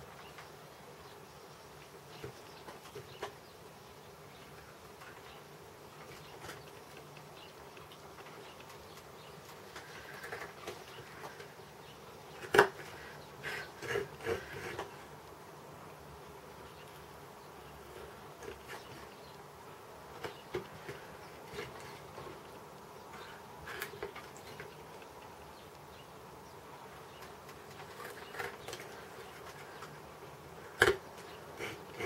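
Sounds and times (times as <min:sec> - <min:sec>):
faint steady hum: 0:00.0 - 0:32.0
sharp wood crack: 0:12.4 - 0:12.9, 0:30.7 - 0:31.3.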